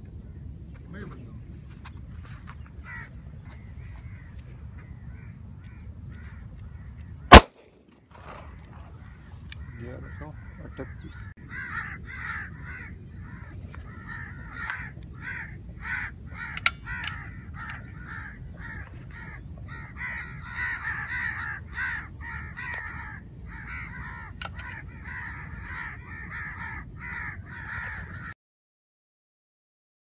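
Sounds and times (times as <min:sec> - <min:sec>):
crows cawing: 0:02.8 - 0:06.8, 0:09.6 - 0:28.4.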